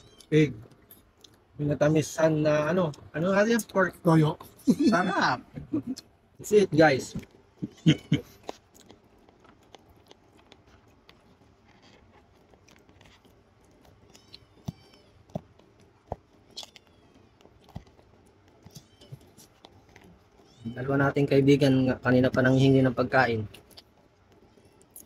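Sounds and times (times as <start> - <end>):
cats meowing faintly: 0.0 - 0.8, 11.2 - 25.0
man chewing food: 0.0 - 1.6, 4.4 - 25.0
small clicks and crunches: 7.0 - 25.0.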